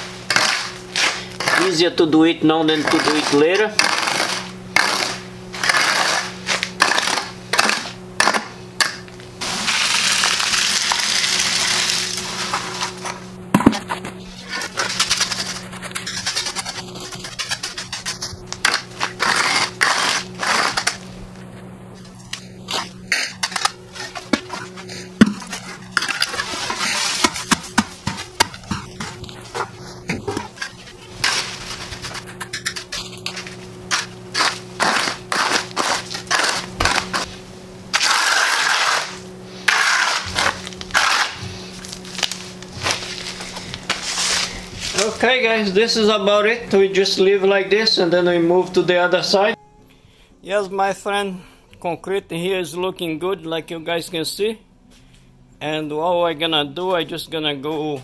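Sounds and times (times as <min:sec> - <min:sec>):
steady low hum: 0:00.0 - 0:58.0
trowel scraping wet concrete: 0:00.3 - 0:21.0, 0:22.0 - 0:45.4.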